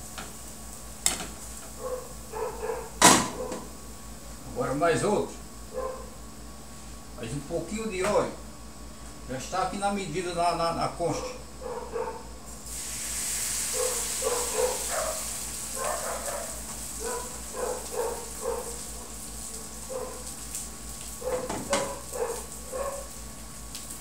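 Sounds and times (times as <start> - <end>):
batter sizzling in hot oil: 0.0 - 2.3, 12.5 - 24.0
dog yapping: 1.8 - 3.7, 5.7 - 6.1, 11.6 - 12.3, 13.7 - 19.1, 19.9 - 20.3, 21.2 - 23.1.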